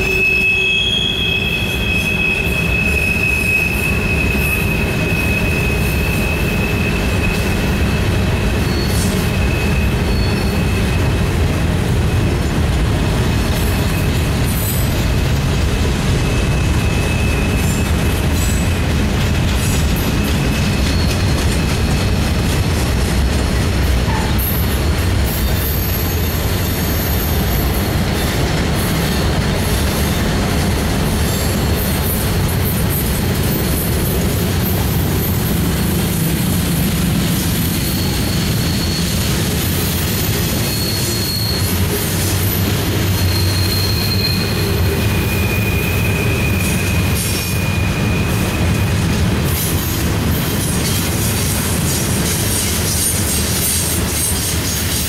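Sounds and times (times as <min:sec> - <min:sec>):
high-pitched wheel squeals: 0:00.0 - 0:11.2, 0:16.2 - 0:18.8, 0:31.1 - 0:49.2
train wheels rumbling on rail: 0:00.0 - 0:55.0.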